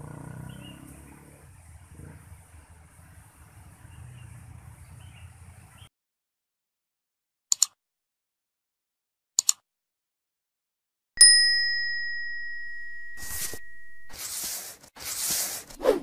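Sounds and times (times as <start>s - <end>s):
mouse double click: 7.5s - 7.8s, 9.4s - 9.6s
bright bell ding: 11.2s - 14.2s.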